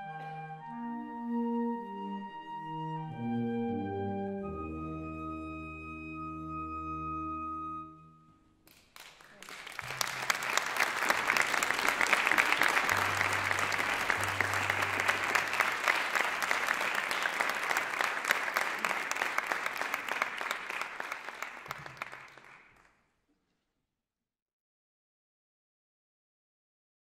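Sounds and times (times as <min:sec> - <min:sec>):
audience applauding: 0:08.7 - 0:22.9.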